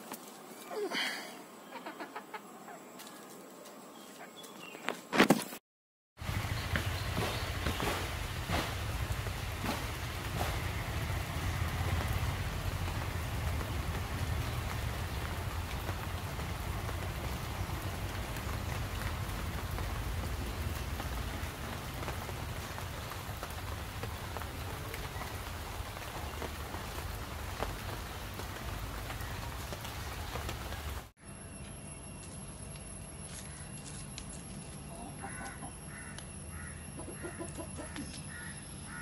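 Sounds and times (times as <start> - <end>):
rain pattering on leaves: 6.2 - 31.1.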